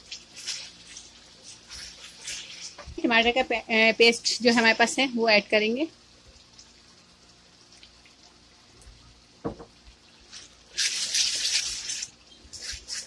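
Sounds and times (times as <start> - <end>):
wet sizzling and scraping: 0.0 - 5.1, 10.0 - 13.0
wooden spoon knock: 9.4 - 9.7.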